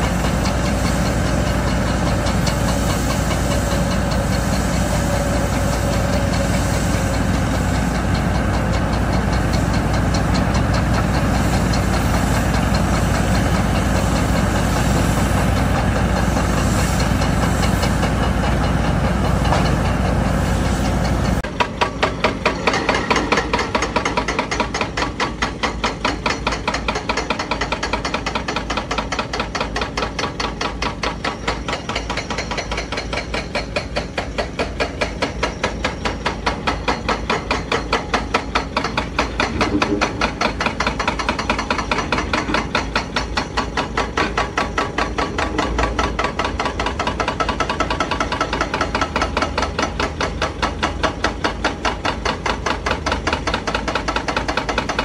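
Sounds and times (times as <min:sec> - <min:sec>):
diesel engine running: 0:00.0 - 0:26.2, 0:33.3 - 0:55.0
hydraulic breaker hammering rock: 0:21.0 - 0:55.0.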